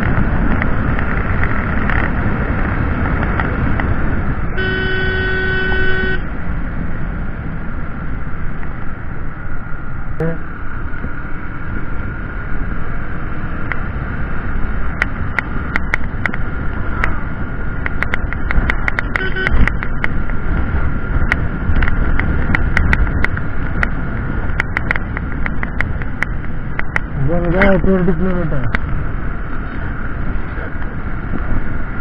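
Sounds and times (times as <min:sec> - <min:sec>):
motorcycle engine and wind rumble: 0:00.0 - 0:32.0
sharp clicks: 0:14.9 - 0:17.2, 0:17.8 - 0:20.4, 0:21.2 - 0:27.8.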